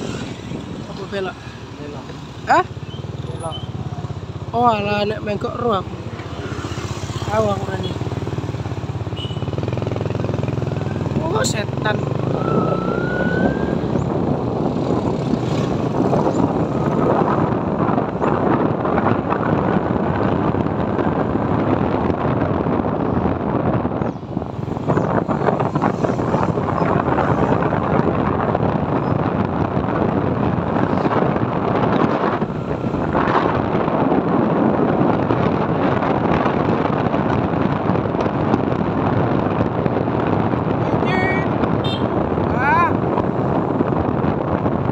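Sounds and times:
road noise: 0.0s - 44.9s
wind rushing over microphone: 0.0s - 44.9s
motorbike engine running: 2.4s - 13.1s.

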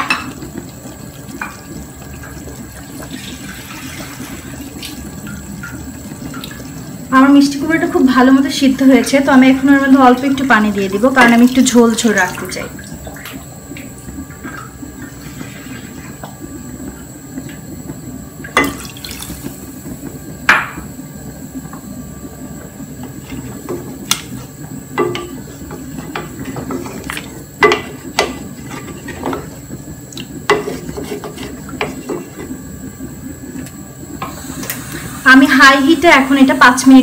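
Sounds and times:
steady low hum: 0.0s - 37.0s
spoon stirring sloshing liquid: 23.0s - 32.7s
spoon knocking on pot: 25.0s - 26.9s, 27.6s - 28.4s.

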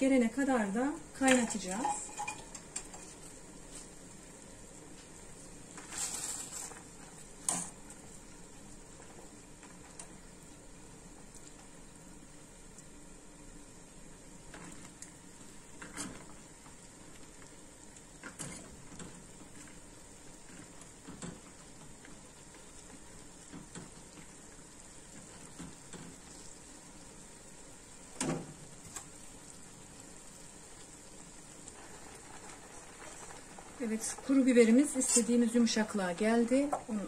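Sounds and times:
water boiling in pots: 0.0s - 37.0s
wire skimmer clinking on pot: 1.2s - 2.9s.

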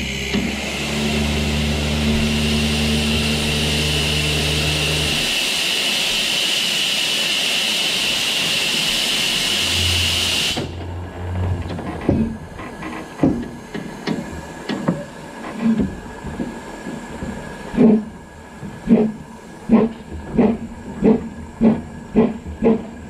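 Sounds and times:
steam hissing from locomotive: 0.5s - 10.8s, 12.6s - 23.0s
low hum: 9.3s - 12.6s.

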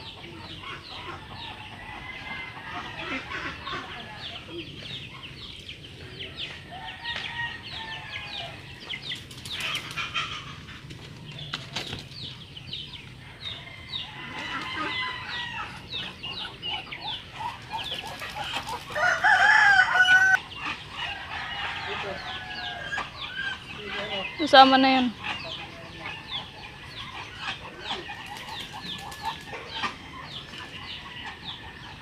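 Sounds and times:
poultry chirping and clucking: 0.0s - 32.0s
wings flapping: 9.1s - 12.2s, 17.4s - 19.5s, 28.1s - 29.6s
rooster crowing: 13.3s - 16.0s, 18.9s - 20.4s.

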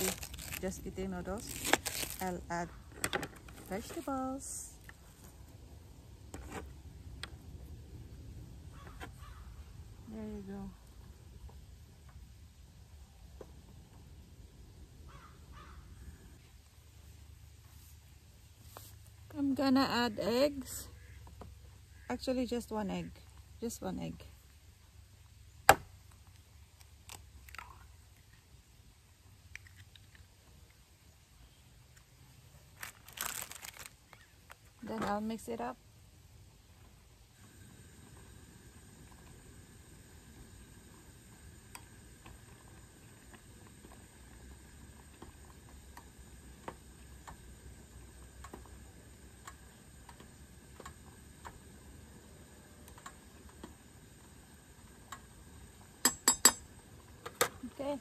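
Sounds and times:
faint low rumble: 0.0s - 29.6s.

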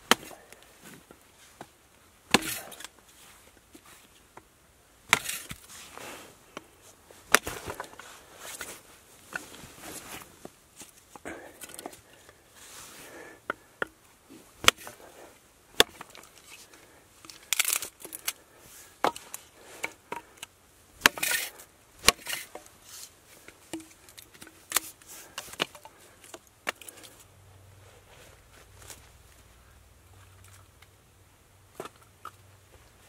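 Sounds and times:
hatchet chopping kindling: 0.0s - 0.4s, 2.3s - 2.9s, 7.3s - 7.9s, 14.6s - 15.0s, 15.8s - 16.2s, 21.0s - 22.7s
wood cracking apart: 17.3s - 18.4s.

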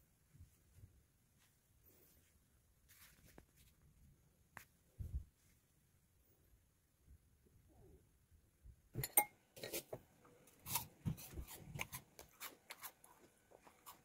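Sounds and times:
dishes and utensils clinking: 9.0s - 10.0s.

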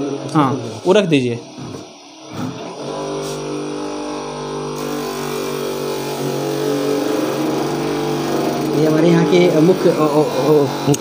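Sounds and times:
motor humming: 1.5s - 11.0s.

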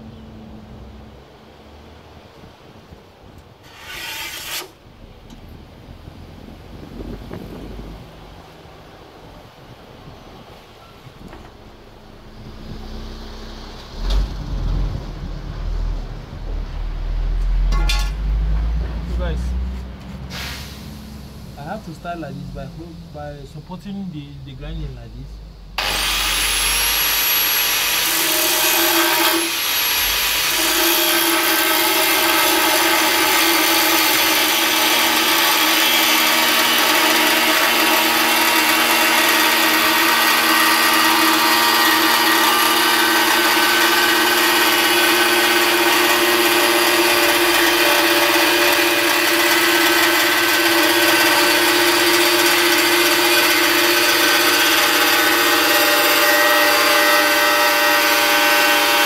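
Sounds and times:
angle grinder cutting sheet metal: 3.6s - 4.8s, 25.8s - 59.0s.

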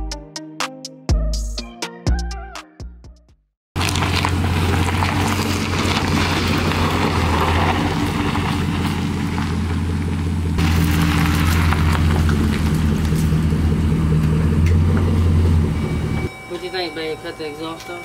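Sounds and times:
pickup truck idling: 3.8s - 18.0s.

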